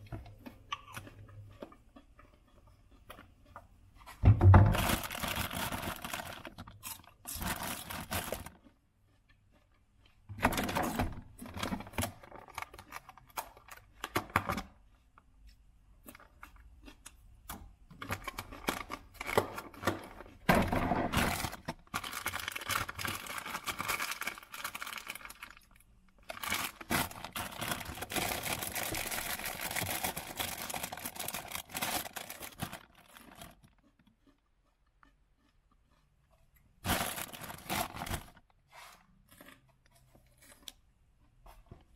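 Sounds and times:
plastic bags crinkling: 0:04.6 - 0:08.6, 0:18.0 - 0:33.8, 0:36.8 - 0:38.5.

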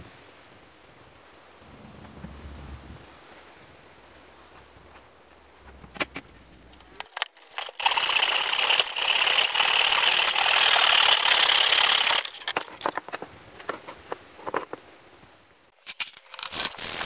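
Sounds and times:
hand saw cutting wood: 0:07.0 - 0:12.7.

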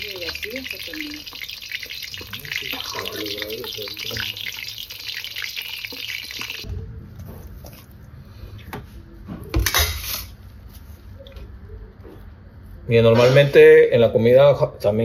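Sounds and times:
shrimp deep-frying in oil: 0:00.0 - 0:06.7.

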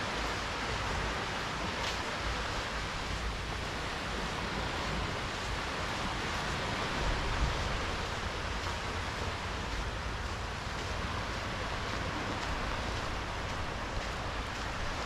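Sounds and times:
small waves washing on beach: 0:00.0 - 0:15.0
wind on microphone: 0:00.0 - 0:15.0.

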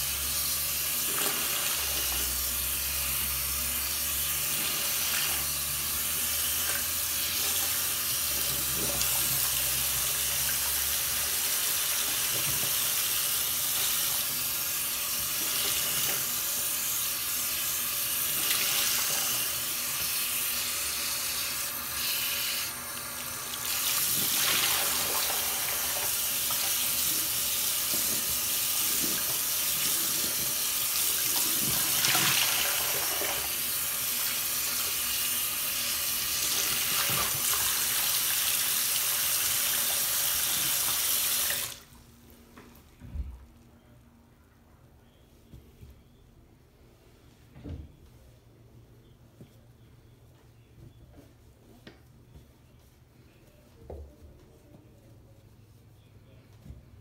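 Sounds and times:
faucet running into sink: 0:36.1 - 0:41.9.

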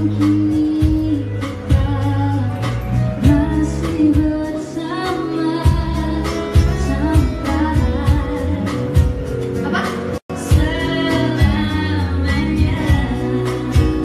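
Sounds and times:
acoustic guitar: 0:00.0 - 0:14.0
bass guitar: 0:00.0 - 0:14.0
drums with steady beat: 0:00.0 - 0:14.0
girl singing pop song: 0:00.0 - 0:14.0.

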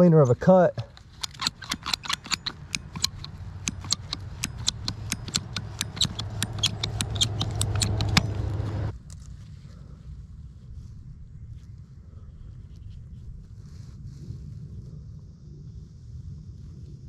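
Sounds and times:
hand tool clicking: 0:00.8 - 0:08.9
low rasp of cutting pipe: 0:01.0 - 0:08.9.

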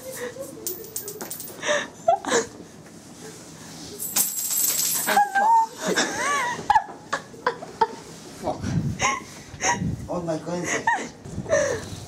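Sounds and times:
small metal objects jingling: 0:00.0 - 0:01.6, 0:04.0 - 0:05.4.

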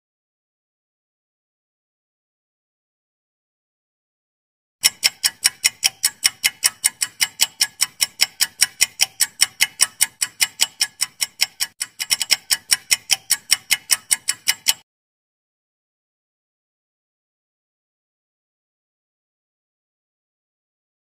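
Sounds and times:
timer ticking: 0:04.8 - 0:14.8.

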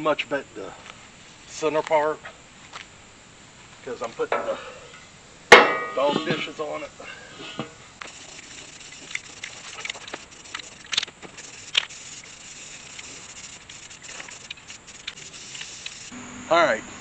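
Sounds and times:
spray paint hissing: 0:08.0 - 0:16.2.

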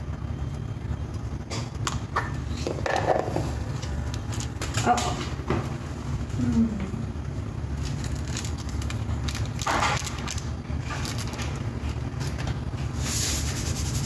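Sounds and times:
low hum: 0:00.0 - 0:14.0
seasoning crumbled by hand: 0:07.7 - 0:14.0.

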